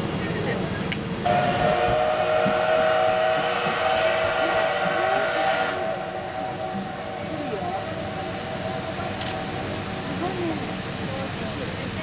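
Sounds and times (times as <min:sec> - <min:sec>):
train whistle blast: 0:01.2 - 0:08.9.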